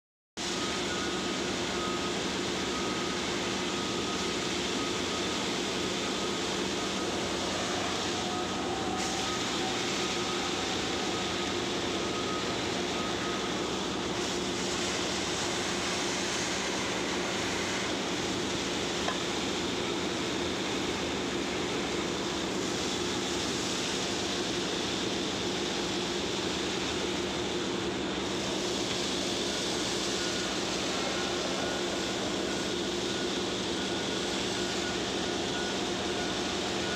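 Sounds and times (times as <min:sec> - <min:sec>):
thin steady whistle: 0:00.4 - 0:20.6, 0:21.2 - 0:36.9
vacuum machinery hum: 0:00.4 - 0:36.9
rush of air through suction hose: 0:05.6 - 0:19.8.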